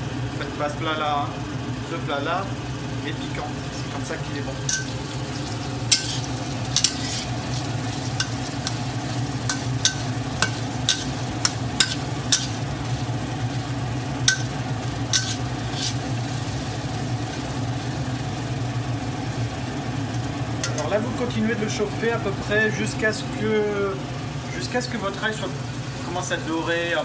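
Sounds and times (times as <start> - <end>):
steady low hum: 0.0 - 27.0
food frying in oil: 2.7 - 21.3
metal spatula clinking on wok: 4.7 - 5.0, 5.9 - 7.3, 9.5 - 12.6, 14.3 - 14.5, 15.2 - 15.4.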